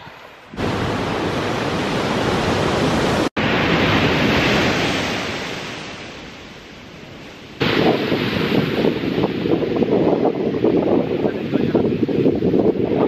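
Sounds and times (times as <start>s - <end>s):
surf washing onto beach: 0.0s - 13.0s
wind rumbling on microphone: 0.0s - 13.0s.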